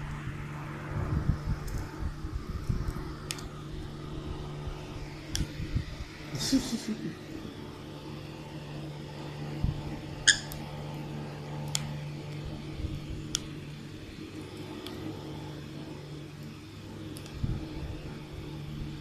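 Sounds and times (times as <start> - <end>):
steady low hum: 0.0 - 19.0.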